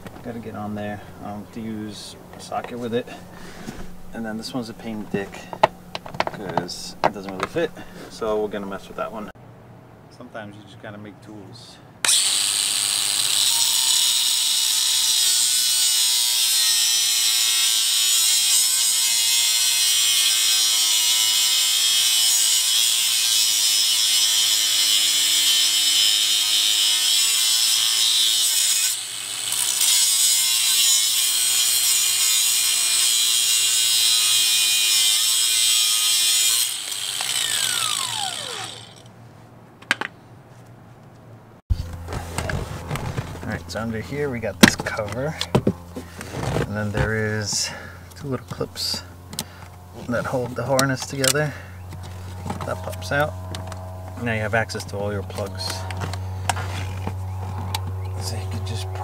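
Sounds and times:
angle grinder grinding steel: 12.0 - 39.1, 43.6 - 59.0
grinder winding down whine: 12.1 - 16.4, 34.2 - 39.1.

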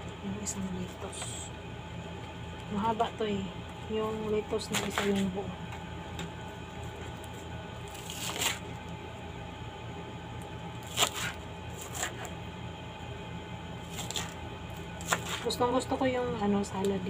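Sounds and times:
steady low hum: 0.0 - 17.0
knife slicing crisp lettuce: 4.7 - 5.2, 7.9 - 8.7, 10.8 - 12.4, 13.8 - 14.4, 15.0 - 15.6.

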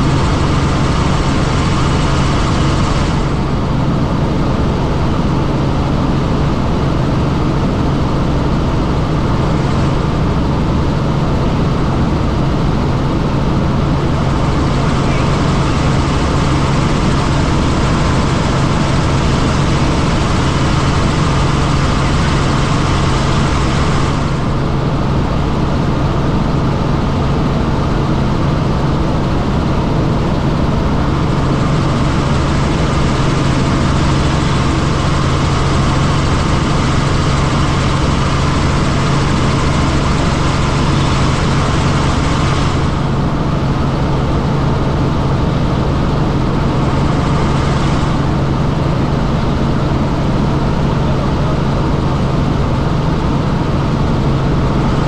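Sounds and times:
helicopter engine and rotor drone: 0.0 - 55.0.

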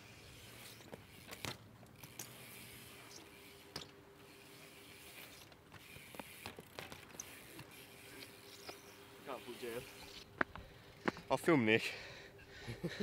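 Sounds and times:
bike clicks and knocks on ramps: 0.2 - 9.0.

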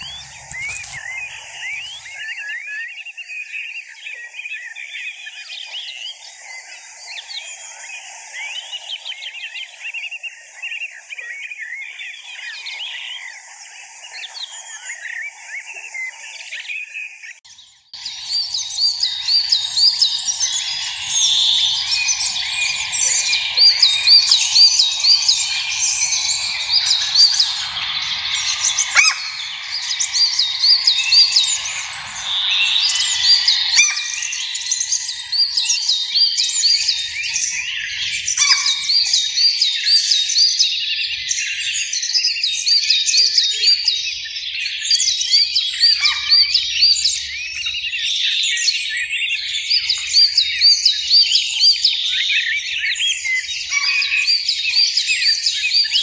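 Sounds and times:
goldfinches twittering and chirping: 0.0 - 2.4, 18.0 - 40.8.

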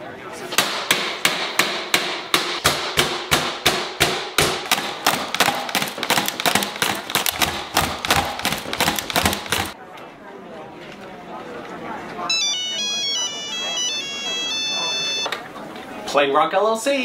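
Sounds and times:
hard plastic knocks: 1.3 - 9.8.

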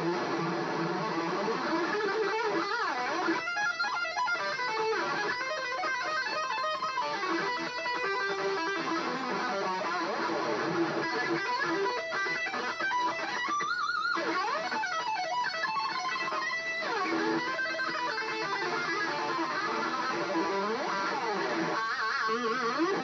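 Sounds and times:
electric guitar lead line: 0.0 - 23.0.

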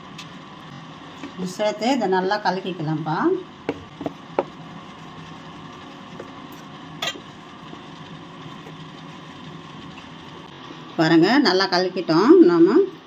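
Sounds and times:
wooden spoon stirring thick pulp: 3.6 - 10.4.

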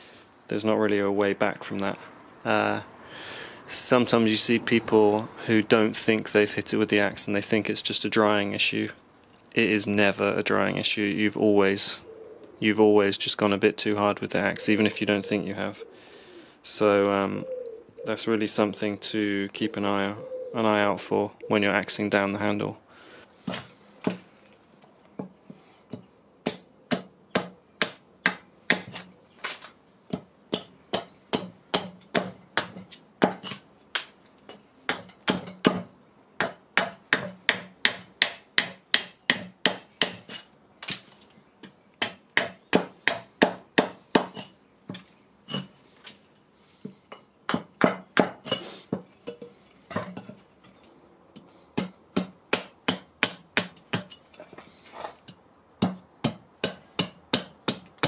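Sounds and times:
axe chopping wood: 23.4 - 24.2, 25.9 - 41.1, 42.0 - 45.0, 47.5 - 49.1, 51.8 - 54.1, 55.8 - 58.0.

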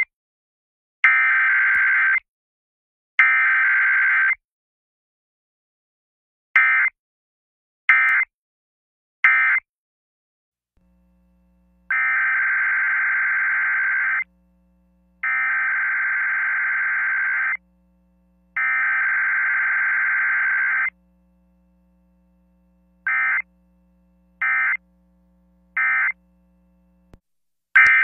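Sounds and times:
faint steady hum: 10.8 - 27.2.

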